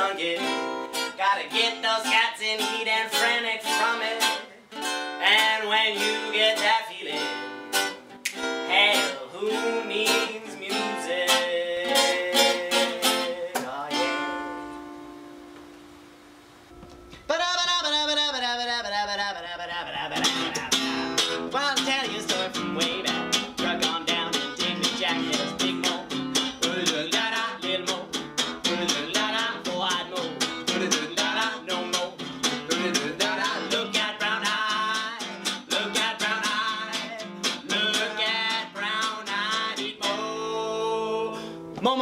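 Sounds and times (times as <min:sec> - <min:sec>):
acoustic guitar strumming: 0:00.0 - 0:42.0
wordless melody singing: 0:00.0 - 0:42.0.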